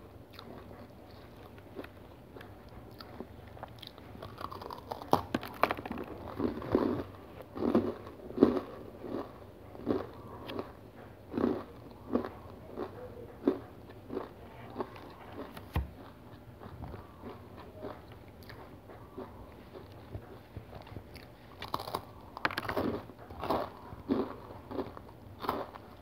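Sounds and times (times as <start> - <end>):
crunchy chewing: 0.2 - 26.0
cereal bar cracking: 21.6 - 23.7.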